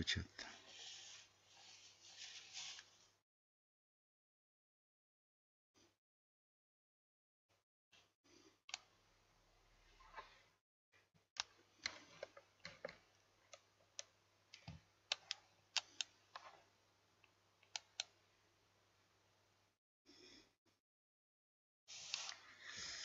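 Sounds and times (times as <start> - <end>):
computer mouse clicking: 11.4 - 16.6, 17.2 - 18.2.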